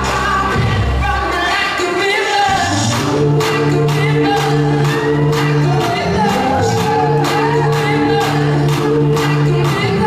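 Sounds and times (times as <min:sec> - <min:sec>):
song with sung melody and bass: 0:00.0 - 0:10.0.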